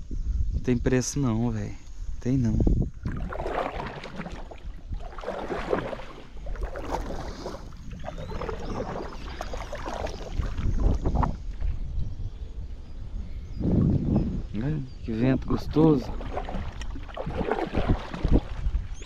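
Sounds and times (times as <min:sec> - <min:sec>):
wind rumble on microphone: 0:00.0 - 0:19.0
paddle splashing in water: 0:03.0 - 0:11.8, 0:15.9 - 0:19.0.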